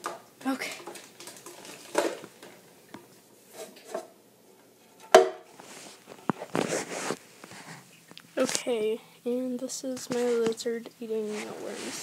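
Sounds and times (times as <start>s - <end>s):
plastic tub clicks and rustles: 0.0s - 4.1s.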